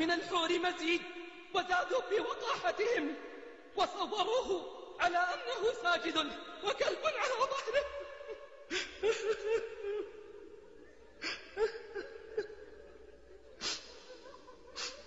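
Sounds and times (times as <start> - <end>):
man sobbing: 1.6 - 15.0
sharp catching breaths: 13.6 - 15.0.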